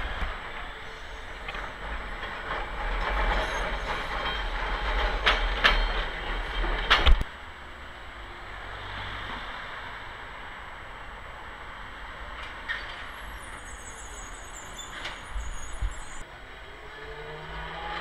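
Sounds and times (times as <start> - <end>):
tram wheels rumbling on rails: 0.0 - 7.3, 12.1 - 16.7
wheels clacking over rail joints: 0.0 - 7.3
street noise: 0.0 - 18.0.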